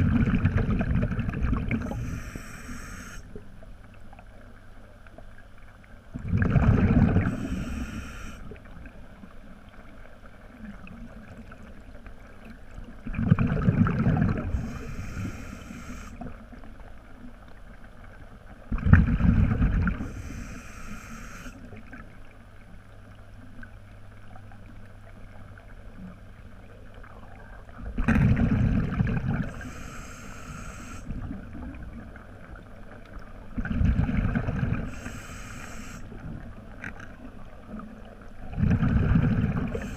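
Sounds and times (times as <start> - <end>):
regulator exhaled bubbles rumble: 0.0 - 2.4, 6.1 - 9.1, 12.8 - 16.7, 18.7 - 20.6, 24.3 - 32.7, 33.4 - 39.9
regulator inhale hiss: 1.8 - 3.4, 7.2 - 8.6, 14.5 - 16.4, 20.0 - 21.7, 29.4 - 31.2, 34.9 - 36.3, 39.6 - 39.9.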